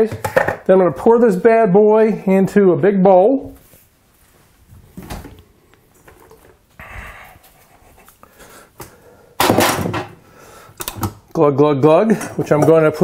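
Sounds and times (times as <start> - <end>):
dishes clicking and knocking: 0.1 - 0.7, 12.1 - 13.0.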